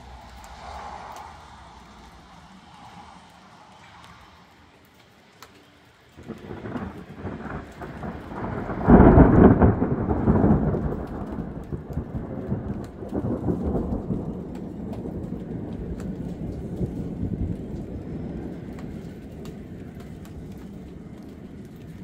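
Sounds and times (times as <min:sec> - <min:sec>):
thunder rumbling: 0:00.0 - 0:05.2, 0:06.1 - 0:22.0.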